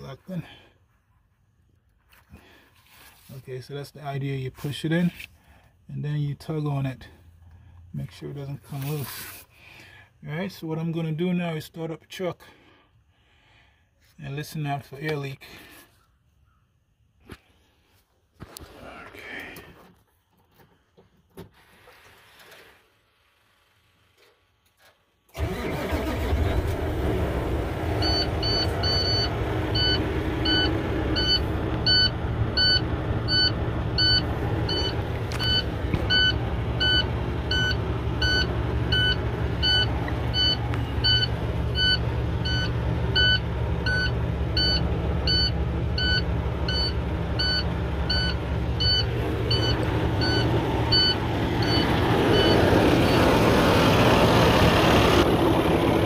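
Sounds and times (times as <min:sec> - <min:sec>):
diesel engine starting and idling: 0:25.3 - 0:56.0
rapid warning beeps: 0:28.0 - 0:53.3.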